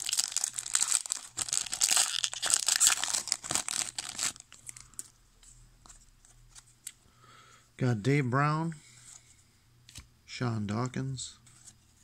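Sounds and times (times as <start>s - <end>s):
foil wrapper crinkling and tearing: 0.0s - 5.1s.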